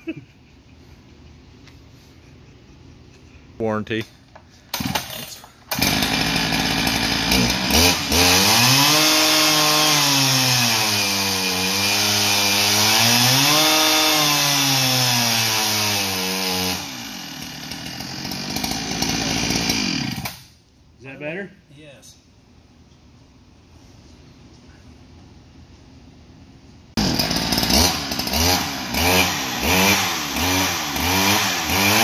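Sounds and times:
chainsaw engine at full throttle: 5.7 - 20.4, 27.0 - 32.0.

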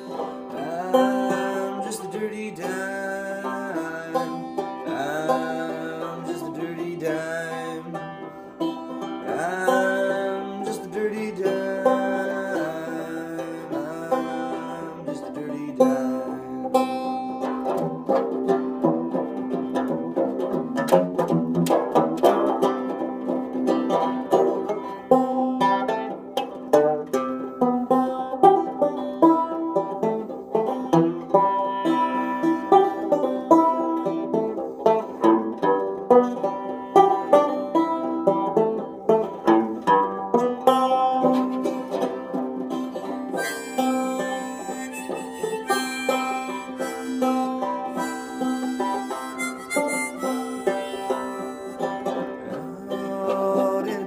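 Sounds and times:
banjo strumming: 0.0 - 54.0
harmonica notes: 42.7 - 54.0.

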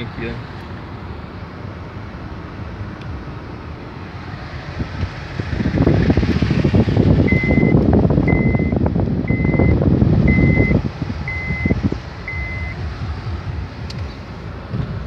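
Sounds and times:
car driving on dirt road: 0.0 - 15.0
electronic warning beep: 7.3 - 12.9.

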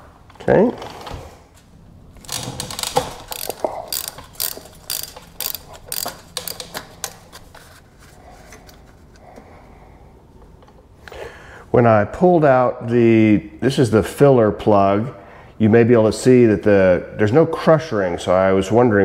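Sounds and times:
ratchet wrench clicking: 2.2 - 7.3.

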